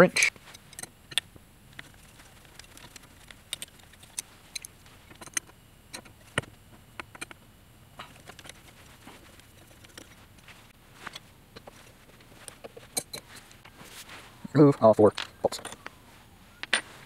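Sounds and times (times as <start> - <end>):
tools clicking and tapping on bolts: 0.5 - 1.9, 2.6 - 7.4, 12.4 - 13.4.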